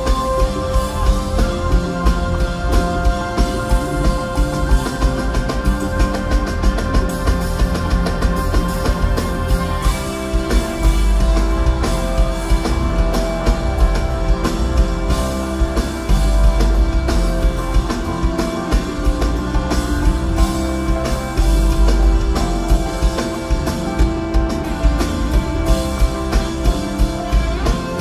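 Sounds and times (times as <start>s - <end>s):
drums steady beat: 0.0s - 28.0s
heavy bass: 0.0s - 28.0s.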